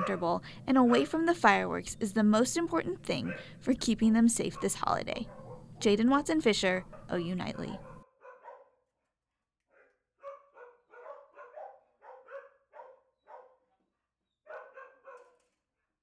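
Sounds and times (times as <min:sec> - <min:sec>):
dogs barking: 0:00.0 - 0:01.3, 0:03.1 - 0:03.6, 0:04.4 - 0:05.8, 0:06.8 - 0:08.8, 0:09.8 - 0:13.7, 0:14.5 - 0:15.4.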